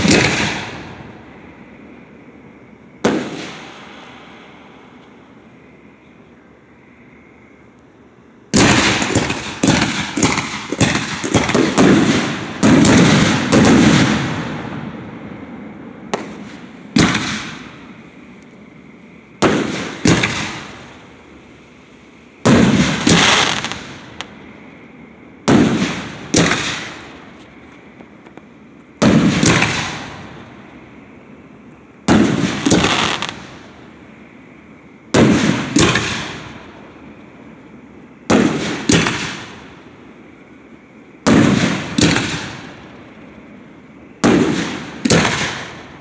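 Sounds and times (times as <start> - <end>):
fireworks bursting: 0.0 - 1.2, 3.0 - 4.5, 8.5 - 15.0, 16.1 - 18.4, 19.4 - 24.5, 25.4 - 30.6, 32.0 - 34.2, 35.1 - 36.9, 38.2 - 39.8, 41.2 - 43.0, 44.2 - 46.0.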